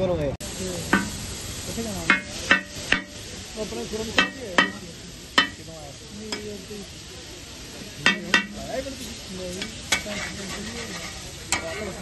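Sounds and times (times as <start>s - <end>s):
sauce sizzling: 0.4s - 12.0s
metal spatula clanging on griddle: 0.9s - 1.2s, 2.0s - 3.2s, 4.1s - 5.7s, 6.3s - 6.5s, 8.0s - 12.0s.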